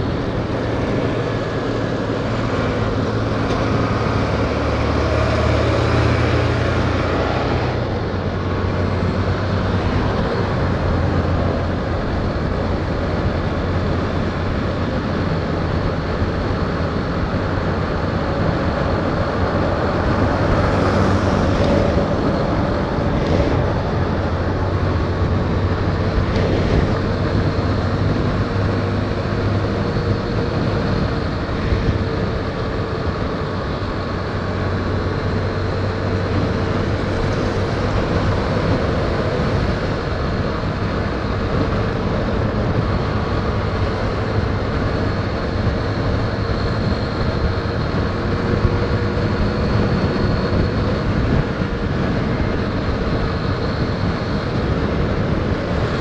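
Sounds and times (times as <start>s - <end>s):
road and wind noise: 0.0s - 56.0s.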